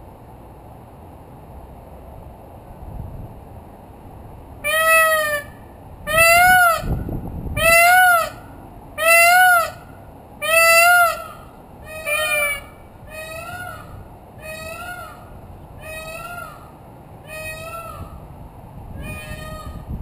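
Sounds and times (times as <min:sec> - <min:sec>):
peacock wailing calls: 0:04.6 - 0:18.4, 0:19.0 - 0:20.0.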